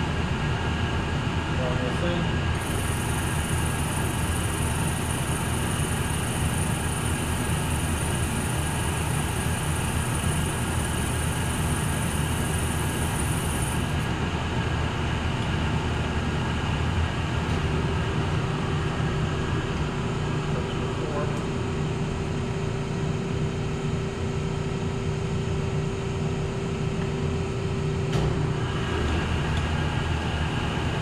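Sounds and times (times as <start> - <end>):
lathe motor hum: 2.6 - 14.2.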